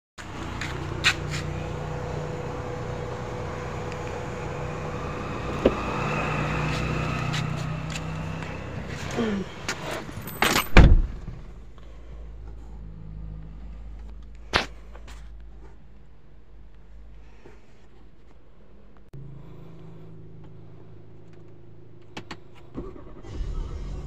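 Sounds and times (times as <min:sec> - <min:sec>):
steady low hum: 0:00.2 - 0:24.0
car door shutting thump: 0:10.7 - 0:11.3.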